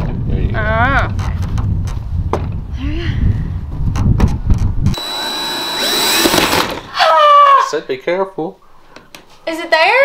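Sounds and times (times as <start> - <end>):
wind rumbling on microphone: 0.0 - 5.0.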